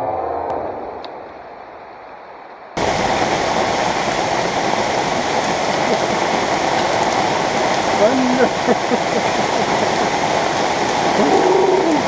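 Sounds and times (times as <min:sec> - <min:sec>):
heavy rain on canopy: 0:02.8 - 0:12.0.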